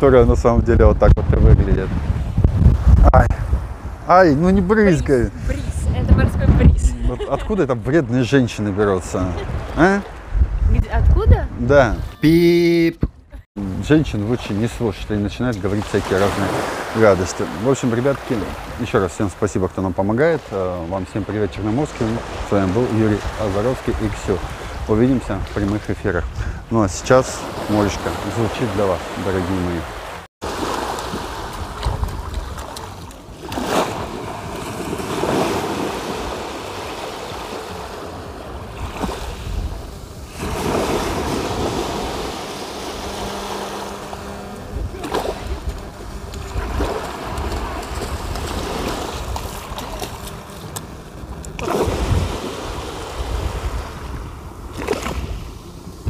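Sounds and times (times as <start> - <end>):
wind rumbling on microphone: 0.0 - 7.8, 8.4 - 12.2, 21.6 - 26.8, 30.4 - 56.0
sea waves breaking on shore: 13.6 - 26.3, 26.9 - 56.0.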